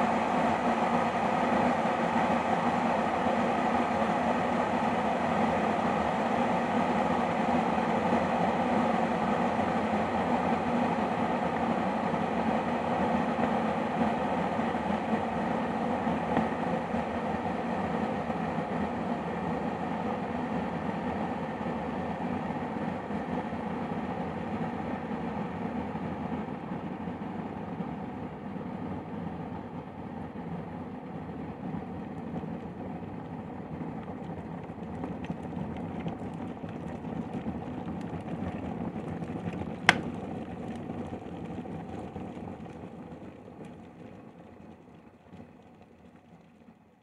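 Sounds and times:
kettle water boiling: 0.0s - 47.0s
kettle switch click: 39.9s - 40.1s.

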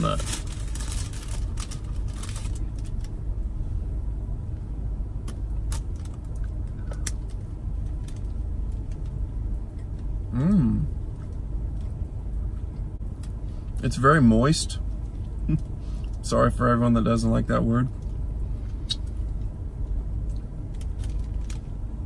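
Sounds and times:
paper bag crinkling: 0.0s - 3.1s
person humming while chewing: 10.3s - 10.9s.

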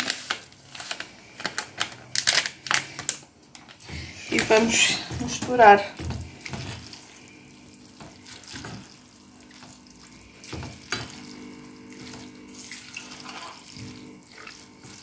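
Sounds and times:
faint steady hum: 0.0s - 15.0s
spatula scraping pot: 12.2s - 15.0s.

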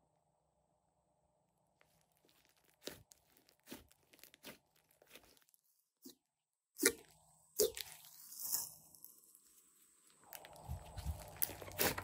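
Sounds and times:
slime squeezed with sticky pops: 1.8s - 6.2s, 10.3s - 12.0s.

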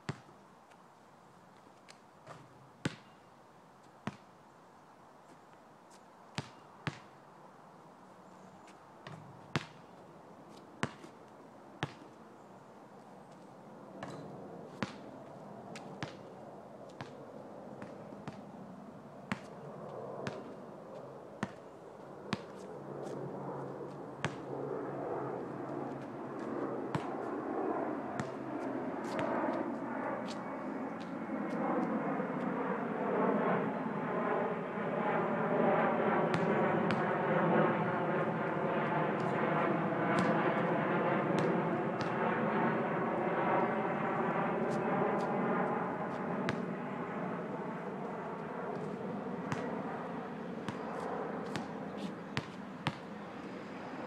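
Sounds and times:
basketball bouncing on asphalt: 0.0s - 0.4s, 2.2s - 3.3s, 4.0s - 4.3s, 6.3s - 7.2s, 9.0s - 10.0s, 10.8s - 11.2s, 11.8s - 12.2s, 14.0s - 17.2s, 17.8s - 18.6s, 19.3s - 21.6s, 22.2s - 33.6s, 35.0s - 42.4s, 43.4s - 46.8s, 48.0s - 50.0s, 50.6s - 53.6s.

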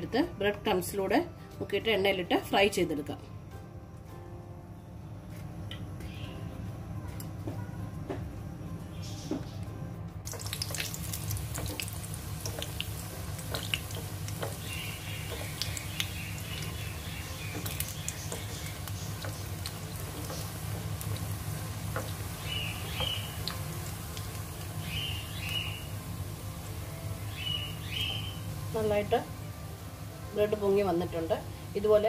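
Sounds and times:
food deep-frying in oil: 10.2s - 29.3s.

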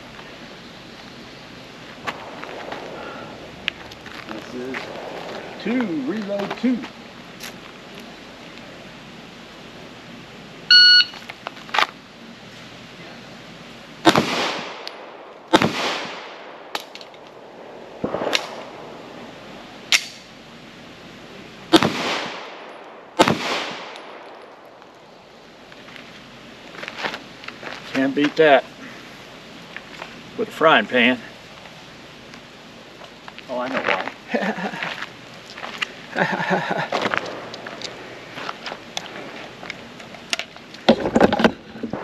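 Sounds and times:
shot timer beep: 10.7s - 11.2s
pistol shots with echo: 14.0s - 16.8s, 21.7s - 24.4s.

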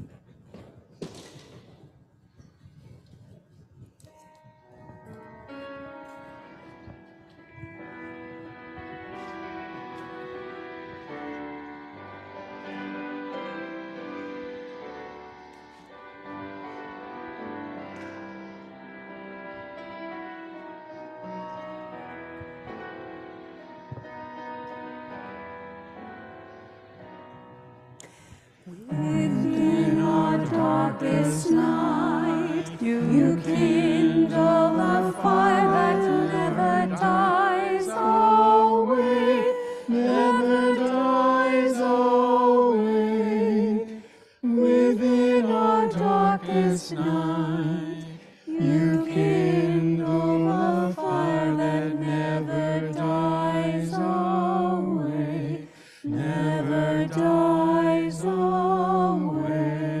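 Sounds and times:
small group singing a sacred song: 28.1s - 60.0s.

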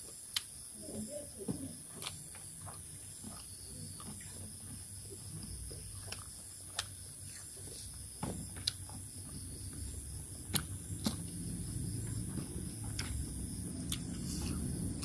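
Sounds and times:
low steady hum: 0.0s - 15.0s
chewing and fingers clicking: 6.0s - 7.8s, 13.8s - 15.0s.

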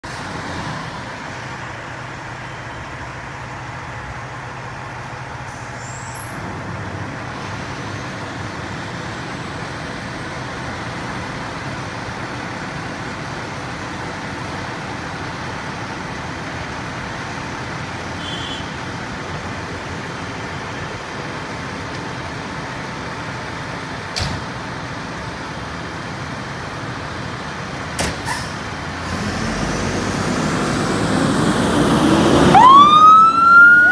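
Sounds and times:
fire truck diesel engine idling: 0.1s - 29.0s.

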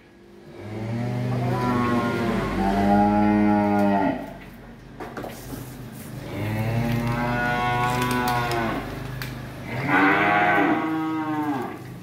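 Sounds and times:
cattle mooing: 0.6s - 4.4s, 6.2s - 8.9s, 9.6s - 11.9s.

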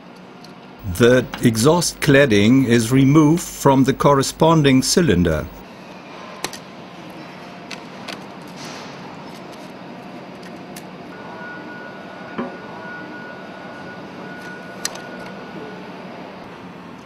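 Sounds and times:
workshop hum: 0.8s - 5.7s.

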